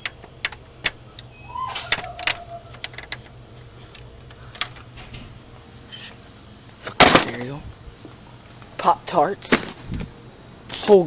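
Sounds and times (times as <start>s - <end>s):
short squeaky tone: 1.3s - 2.8s.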